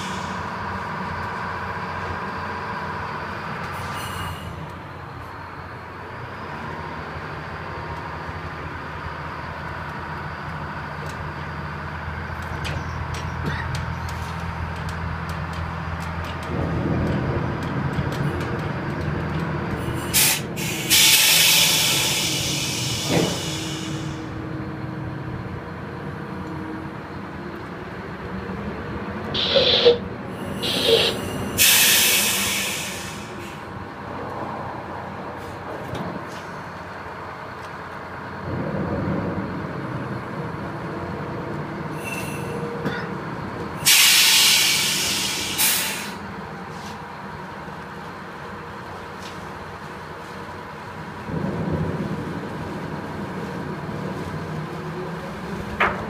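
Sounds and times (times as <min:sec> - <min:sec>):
tugboat engines rumbling: 0:00.0 - 0:56.0
loud hissing bursts: 0:20.2 - 0:24.2, 0:29.4 - 0:33.6, 0:43.8 - 0:46.2
short sharp sounds: 0:29.4 - 0:30.0.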